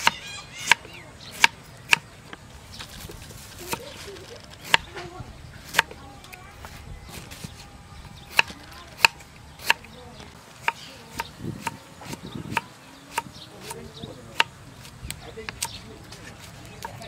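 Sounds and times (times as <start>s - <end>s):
rustle of handling: 2.4s - 7.9s
knife chopping on wooden block: 8.3s - 9.8s.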